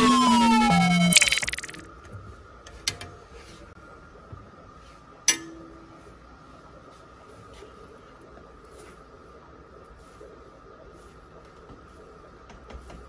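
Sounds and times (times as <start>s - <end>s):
music sting: 0.0s - 1.8s.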